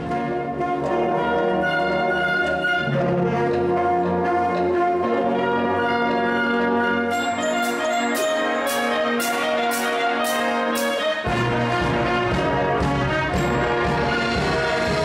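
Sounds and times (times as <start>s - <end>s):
wind band playing: 0.0s - 15.0s
high percussion strokes: 7.1s - 15.0s.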